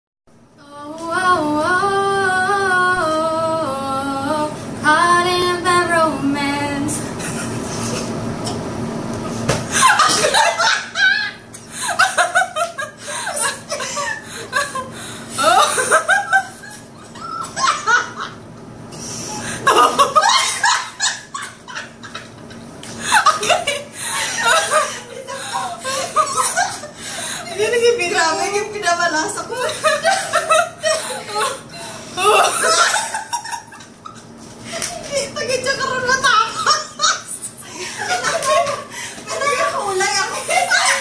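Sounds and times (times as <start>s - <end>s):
woman singing unaccompanied: 0.6s - 7.1s
women laughing and giggling: 7.1s - 8.2s, 9.7s - 18.4s, 19.4s - 41.0s.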